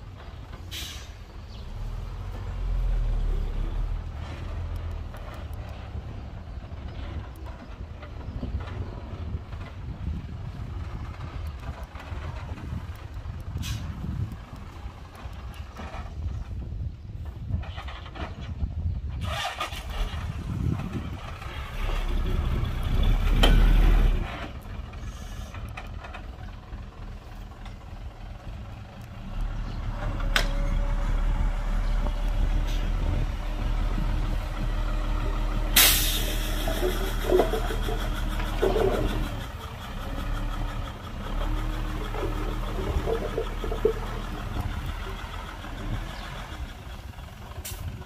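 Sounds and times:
heavy diesel machinery working: 0:00.0 - 0:48.0
sharp hiss: 0:35.8 - 0:36.7.

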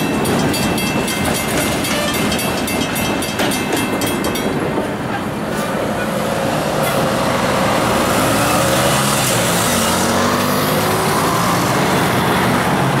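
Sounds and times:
vehicles accelerating: 0:05.3 - 0:13.0.

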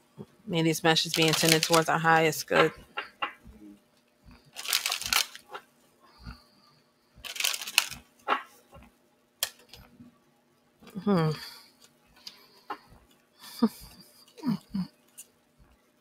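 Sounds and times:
cards shuffling: 0:01.1 - 0:01.9, 0:04.5 - 0:05.6, 0:07.2 - 0:08.5.

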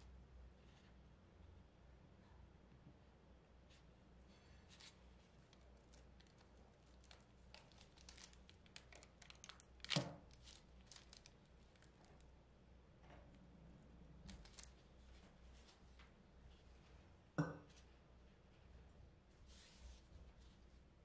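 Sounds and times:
parchment paper crinkling: 0:04.7 - 0:12.3, 0:14.3 - 0:14.8.

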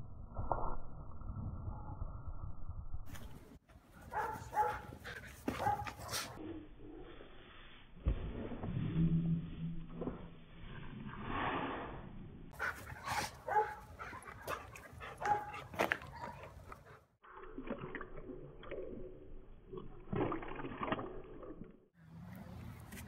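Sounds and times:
dogs barking and yipping: 0:04.1 - 0:06.4, 0:12.6 - 0:16.8
dog lapping water from metal bowl: 0:17.3 - 0:21.8.

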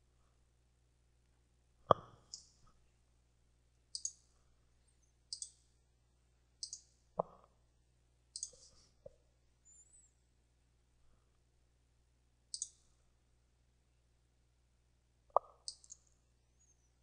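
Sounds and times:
mouse buttons clicking: 0:01.9 - 0:02.5, 0:03.9 - 0:04.2, 0:05.3 - 0:05.6, 0:06.6 - 0:07.4, 0:08.4 - 0:08.7, 0:12.5 - 0:12.8, 0:15.3 - 0:16.8.

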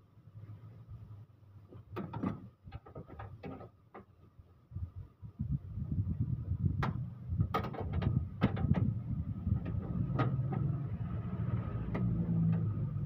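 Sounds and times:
steady low rumble: 0:04.5 - 0:13.0.

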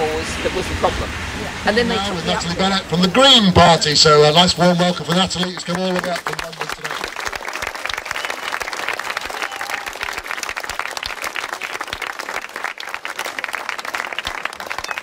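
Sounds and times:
crowd applauding: 0:01.8 - 0:15.0.

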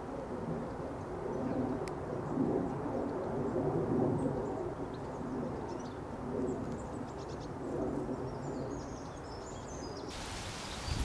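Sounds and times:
wind and rustling hiss: 0:00.0 - 0:11.0
faint high bird chirps: 0:10.3 - 0:11.0.

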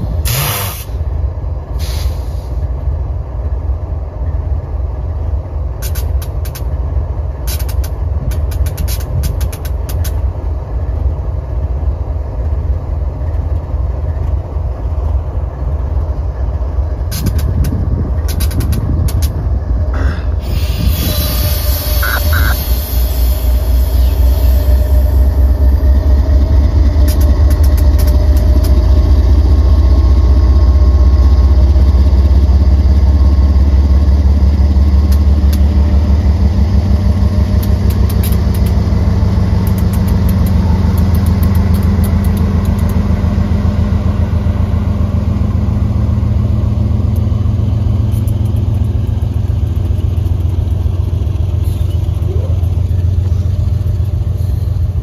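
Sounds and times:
diesel locomotive engines throbbing: 0:00.0 - 0:55.0
sharp clicks: 0:07.5 - 0:10.2, 0:17.1 - 0:19.4, 0:27.0 - 0:28.8, 0:37.5 - 0:38.8, 0:39.6 - 0:43.0, 0:48.1 - 0:50.6.

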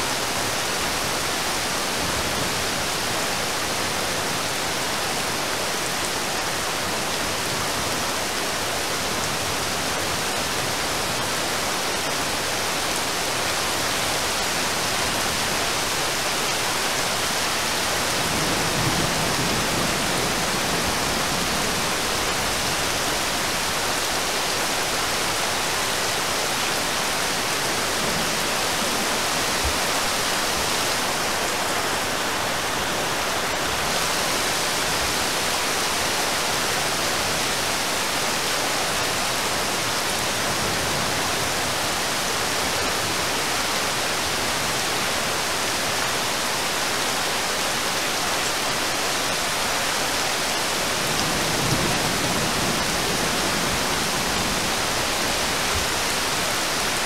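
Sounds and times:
rain falling on river: 0:00.0 - 0:57.0.

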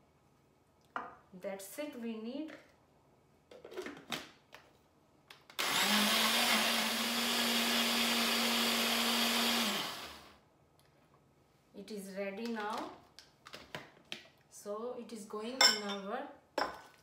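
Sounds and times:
blender motor running: 0:05.6 - 0:10.4.

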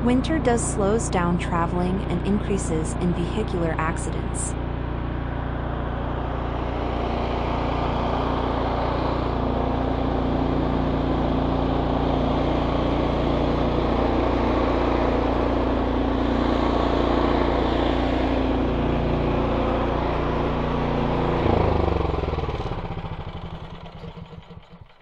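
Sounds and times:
constant low hum: 0:00.0 - 0:10.2
car engine and road noise: 0:00.0 - 0:24.9.

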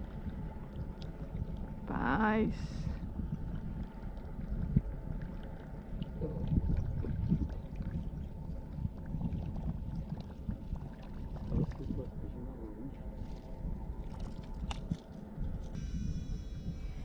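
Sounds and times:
wind: 0:00.0 - 0:17.0
small waves slapping against hull: 0:03.2 - 0:12.0, 0:13.1 - 0:15.4.

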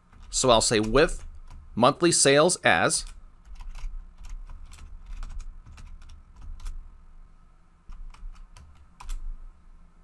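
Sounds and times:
computer keyboard typing: 0:00.0 - 0:01.7, 0:03.0 - 0:06.8, 0:07.9 - 0:09.3.

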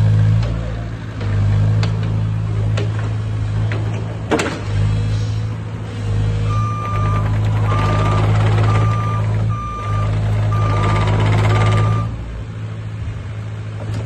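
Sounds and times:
excavator diesel engine running: 0:00.0 - 0:14.0
travel alarm beeping: 0:06.5 - 0:12.2.

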